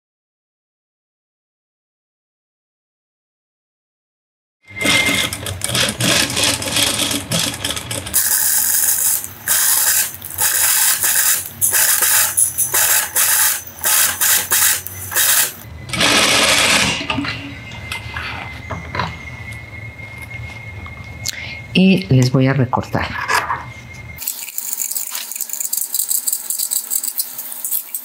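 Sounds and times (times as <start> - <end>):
industrial sewing machine stitching: 4.7 - 17.1.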